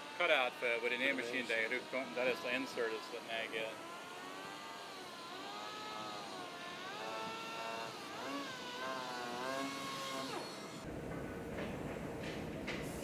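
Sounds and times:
power tool motor running: 0.0s - 10.9s.

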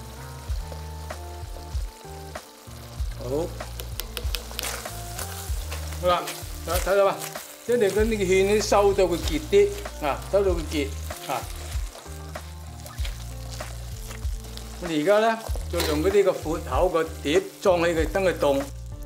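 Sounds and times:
food sizzling in a wok: 0.0s - 19.0s
metal spatula scraping: 15.5s - 16.2s.

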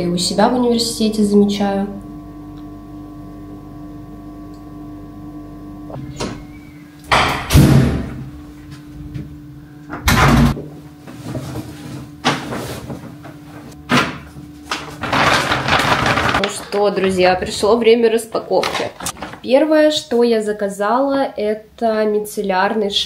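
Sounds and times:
low hum: 0.0s - 18.3s
door opening: 5.9s - 8.2s, 9.9s - 10.6s
door shutting with a thud: 5.9s - 8.3s, 9.9s - 10.7s, 13.9s - 14.3s
plastic bag rustling: 11.0s - 19.6s.

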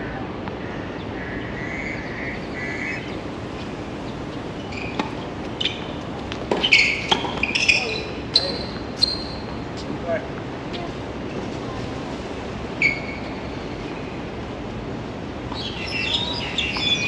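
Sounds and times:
steady background hum: 0.0s - 17.0s
tennis ball hit with racquet: 6.3s - 7.6s.

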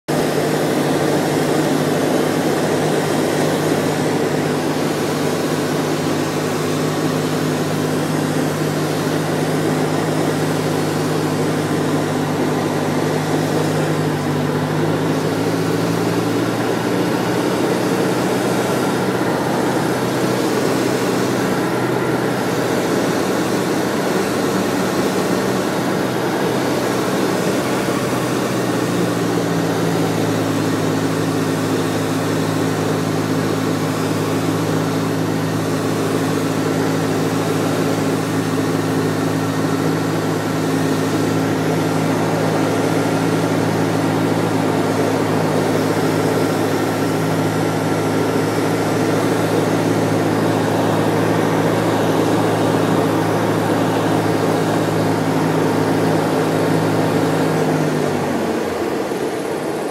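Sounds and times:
light aircraft engine droning: 0.1s - 59.9s.

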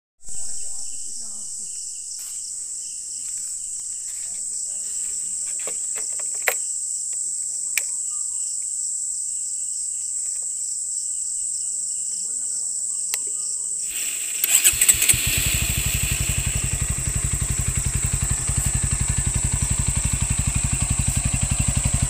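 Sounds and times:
high-pitched insect chorus: 0.2s - 22.0s
sharp clicks: 5.6s - 7.9s, 13.1s - 17.6s.

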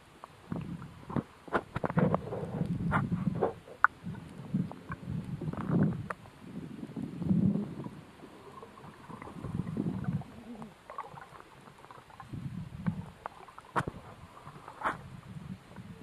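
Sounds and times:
muffled underwater swells: 0.0s - 16.0s
faint clicks: 3.7s - 6.3s.

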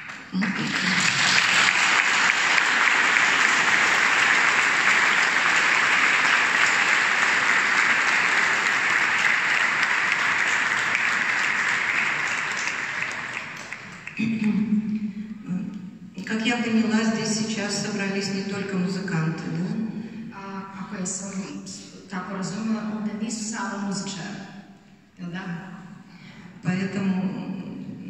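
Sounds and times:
large audience applauding: 0.0s - 14.4s.

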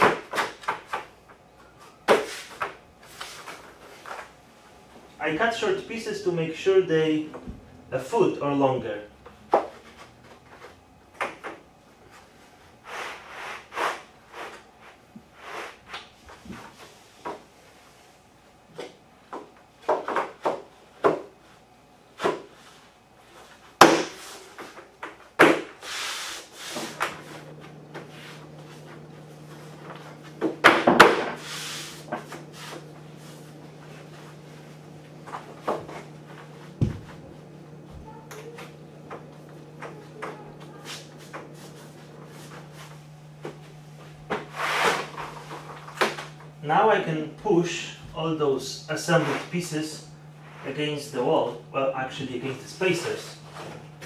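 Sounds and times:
steady low hum: 0.0s - 54.0s
boards scraping over underlayment: 44.4s - 45.7s.

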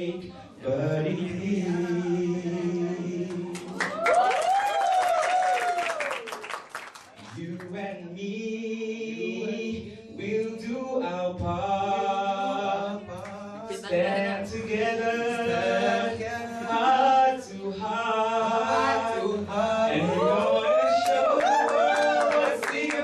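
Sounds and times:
men singing through a pa: 0.0s - 3.8s, 7.4s - 23.0s.

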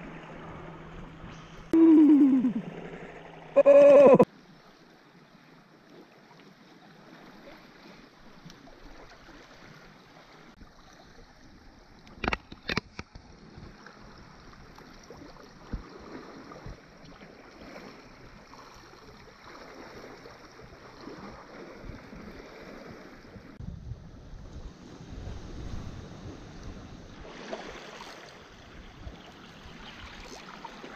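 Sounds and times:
waves lapping on rocky shore: 24.6s - 30.9s.

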